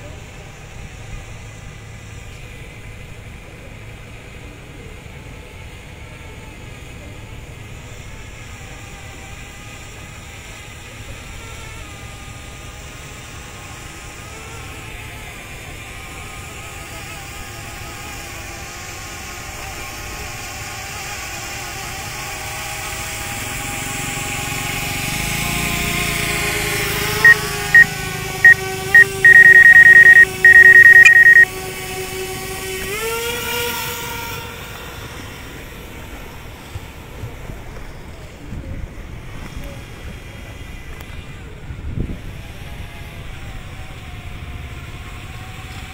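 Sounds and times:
high electronic beeps: 0:28.5 - 0:31.4.

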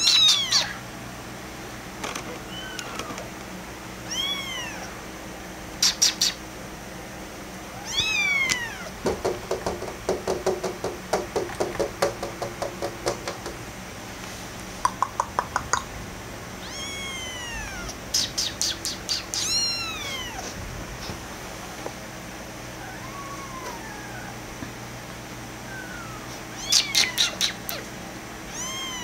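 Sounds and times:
kitten meowing: 0:00.0 - 0:00.8, 0:02.4 - 0:03.3, 0:04.1 - 0:05.0, 0:07.8 - 0:08.9, 0:16.6 - 0:20.6, 0:22.8 - 0:24.4, 0:25.6 - 0:27.9, 0:28.5 - 0:29.0.

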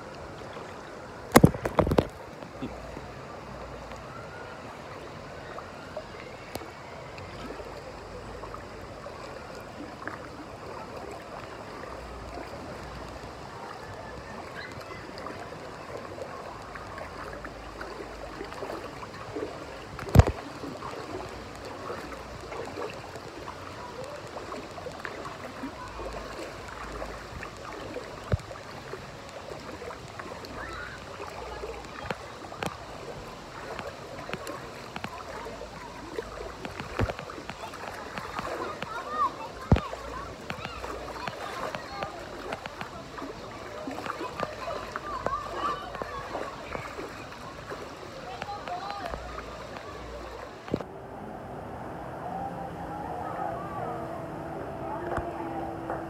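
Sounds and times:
water flowing and lapping: 0:00.0 - 0:56.0.

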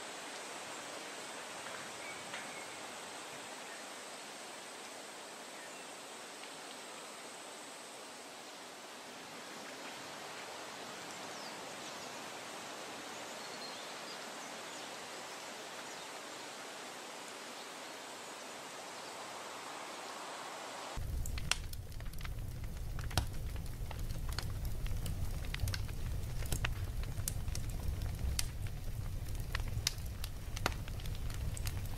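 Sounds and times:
outdoor background hiss: 0:00.0 - 0:31.9
charcoal fire crackling: 0:00.2 - 0:02.9, 0:21.0 - 0:31.9
low rumble: 0:21.0 - 0:31.9.

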